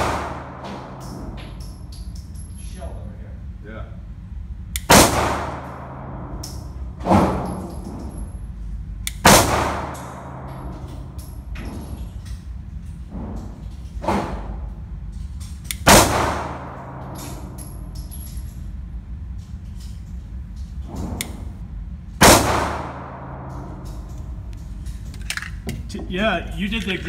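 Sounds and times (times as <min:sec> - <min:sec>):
pistol shots echoing: 0:00.0 - 0:01.4, 0:04.9 - 0:06.1, 0:09.2 - 0:10.4, 0:15.8 - 0:17.6, 0:22.2 - 0:24.4
steady low hum: 0:00.0 - 0:27.0.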